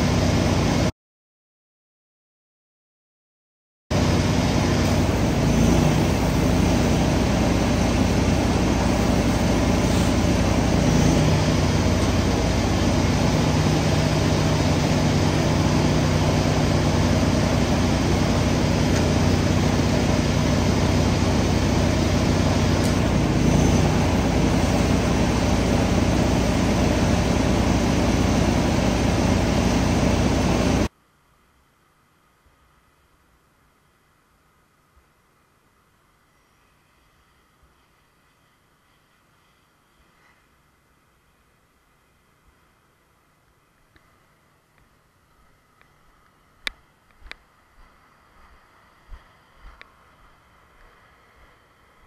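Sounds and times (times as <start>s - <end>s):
small engine running: 3.9s - 30.9s
water spraying from hose: 4.0s - 30.8s.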